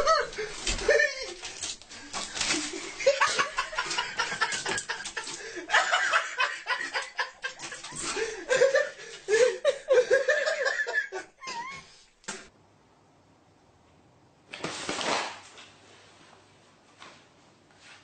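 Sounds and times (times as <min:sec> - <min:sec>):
person laughing: 0:00.0 - 0:01.6, 0:02.5 - 0:11.9.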